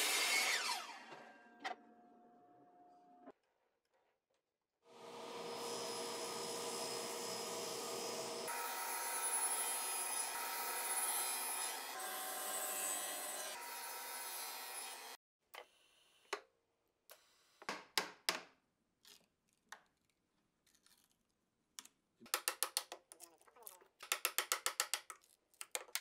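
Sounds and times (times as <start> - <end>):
table saw cutting wood: 0.0 - 1.8, 4.9 - 15.2.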